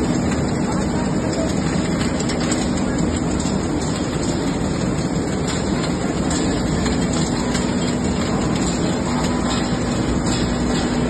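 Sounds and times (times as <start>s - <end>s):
constant hum: 0.0s - 11.0s
conveyor mechanical din: 0.0s - 11.0s.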